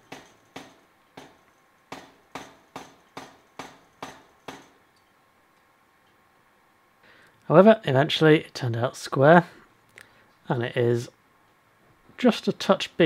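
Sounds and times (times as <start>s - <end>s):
power hammer striking steel: 0.0s - 4.8s.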